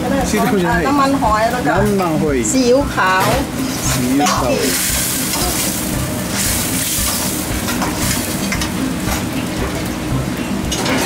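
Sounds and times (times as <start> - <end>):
sauce sizzling in a pan: 0.4 - 10.7.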